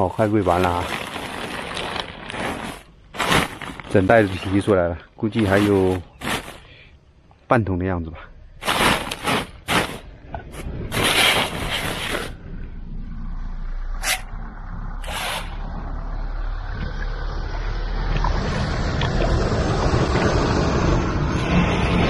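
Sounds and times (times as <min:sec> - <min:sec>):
plastic sack rustling: 0:00.0 - 0:06.9, 0:08.6 - 0:12.4
low rumble: 0:08.3 - 0:22.0.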